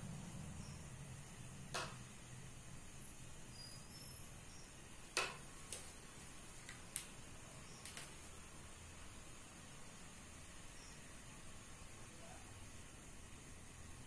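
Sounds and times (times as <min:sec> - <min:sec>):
low steady hum: 0:00.0 - 0:14.0
faint clicks and taps: 0:06.6 - 0:07.1, 0:07.8 - 0:08.3.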